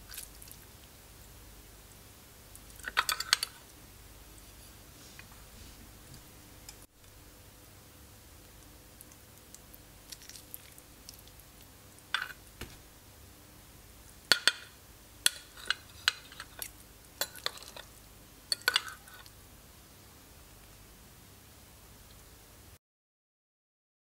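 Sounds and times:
cutlery clinking on ceramic bowl: 2.8 - 3.6, 18.5 - 19.3.

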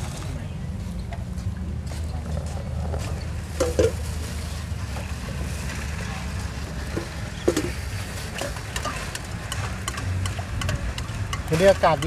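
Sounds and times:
faint voices: 0.0 - 9.8.

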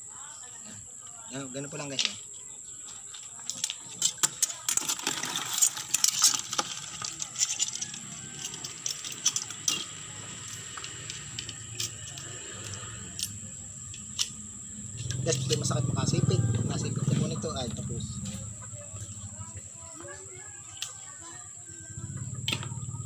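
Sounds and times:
high insect drone: 0.0 - 23.0
utensils clicking on crab shells: 3.5 - 14.4.

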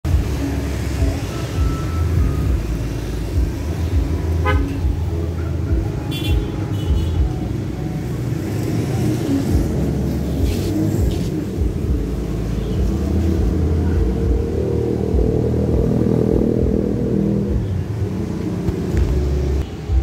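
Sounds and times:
road traffic rumble: 0.0 - 20.0
high-pitched beep: 1.0 - 2.9
vehicle horn toot: 4.4 - 4.8, 6.1 - 7.2.

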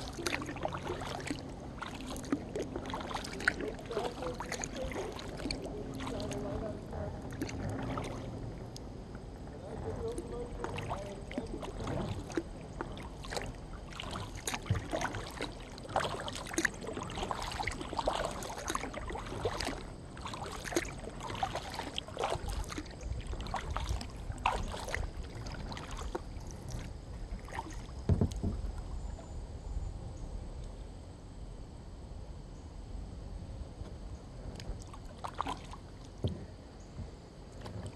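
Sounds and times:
paddle splashing water: 0.0 - 8.7, 9.3 - 29.2, 34.6 - 36.5
dull knock: 28.1 - 28.6.

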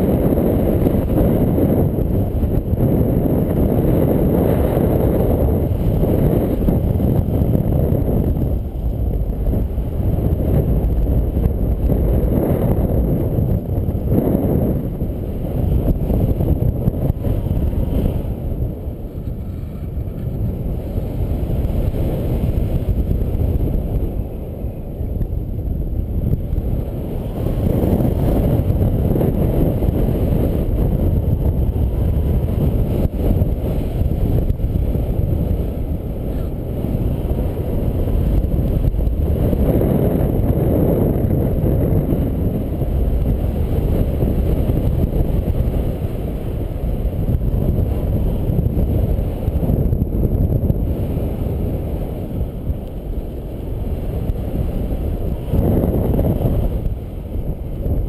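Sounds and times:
airflow buffeting microphone: 0.0 - 58.0.

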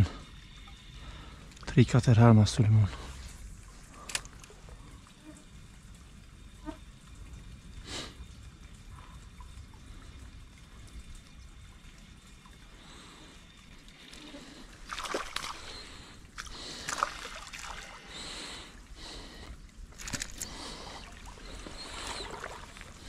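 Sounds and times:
river water splashing: 12.4 - 23.0.

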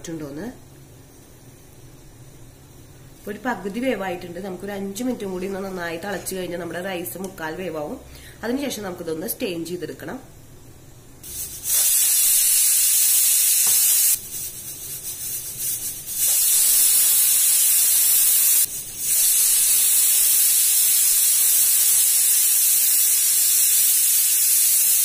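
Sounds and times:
pressure cooker whistling: 11.2 - 14.2, 14.9 - 25.0.

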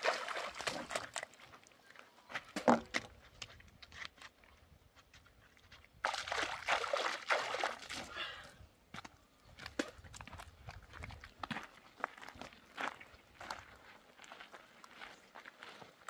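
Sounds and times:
water splashing by hand: 0.0 - 1.4, 6.0 - 8.2.

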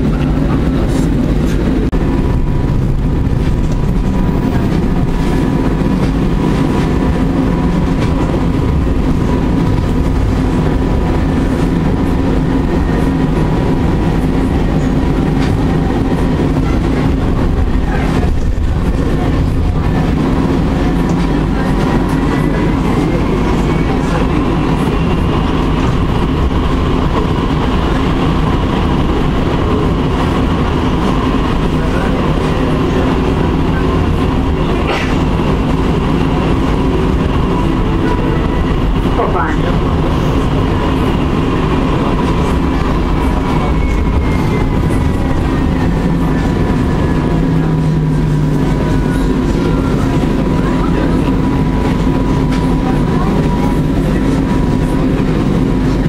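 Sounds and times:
tram wheels rumbling on rail: 0.0 - 56.0.

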